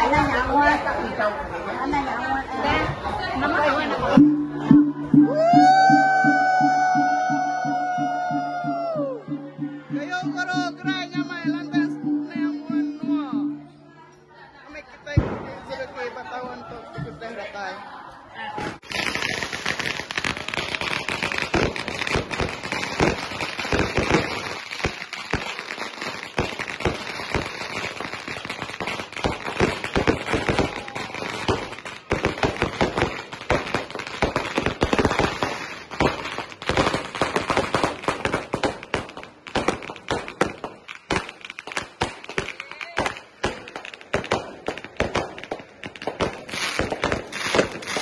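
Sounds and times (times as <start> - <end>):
firecrackers popping and banging: 15.1 - 16.1, 18.6 - 48.0
fountain firework hissing: 18.8 - 48.0.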